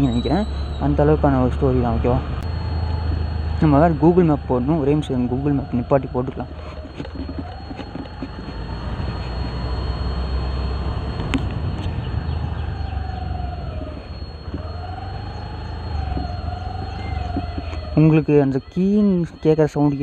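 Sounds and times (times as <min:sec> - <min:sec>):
thin high whine: 0:00.0 - 0:20.0
scooter engine revving: 0:01.6 - 0:18.0
wind rumble on microphone: 0:05.2 - 0:18.0.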